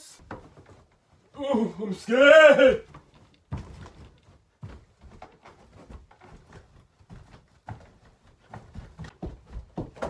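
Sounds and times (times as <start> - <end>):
footsteps on carpet: 2.4 - 10.0.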